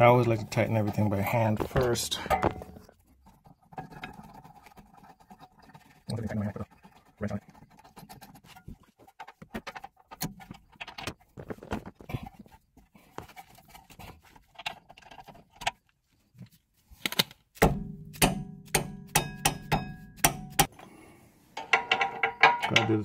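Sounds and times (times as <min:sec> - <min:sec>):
hand tools clinking and tapping: 0:00.2 - 0:03.0, 0:18.8 - 0:20.7, 0:21.6 - 0:23.0.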